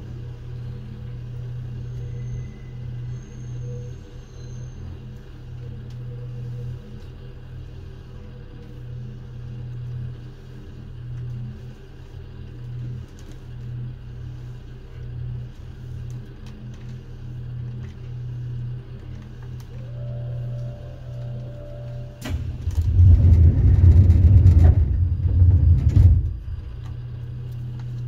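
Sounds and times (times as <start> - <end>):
train wheels rumbling on track: 19.7 - 27.8.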